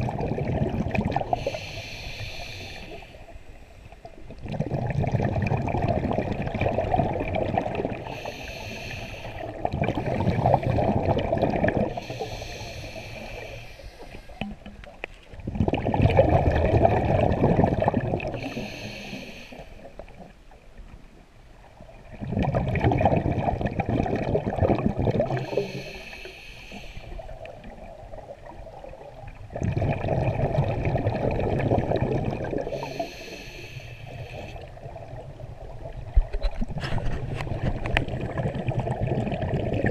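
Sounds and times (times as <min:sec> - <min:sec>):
exhaled bubbles rushing: 0:00.0 - 0:01.6, 0:04.1 - 0:08.2, 0:09.4 - 0:12.1, 0:15.4 - 0:18.6, 0:21.9 - 0:25.7, 0:27.2 - 0:32.9, 0:34.6 - 0:39.9
diver breathing underwater: 0:01.1 - 0:03.8, 0:07.9 - 0:14.7, 0:16.6 - 0:20.0, 0:25.0 - 0:27.6, 0:31.9 - 0:34.9.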